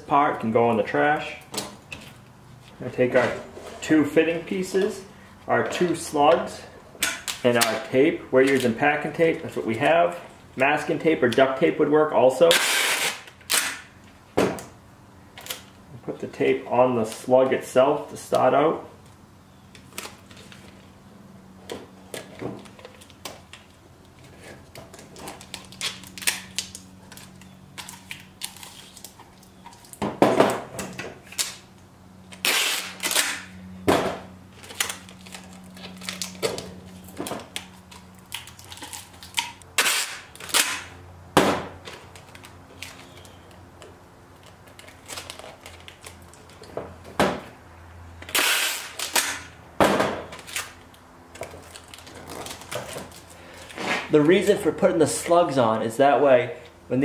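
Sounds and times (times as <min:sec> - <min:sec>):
packing tape pulled off roll: 0:12.5 - 0:13.9, 0:22.2 - 0:30.0, 0:31.2 - 0:31.6, 0:32.3 - 0:33.5, 0:34.5 - 0:40.9, 0:44.4 - 0:46.7, 0:48.2 - 0:49.5, 0:50.4 - 0:54.1
tape ripping: 0:12.5 - 0:13.9, 0:24.9 - 0:30.0, 0:30.9 - 0:31.7, 0:32.3 - 0:33.5, 0:34.5 - 0:40.9, 0:44.4 - 0:46.7, 0:48.2 - 0:49.5, 0:50.3 - 0:54.5.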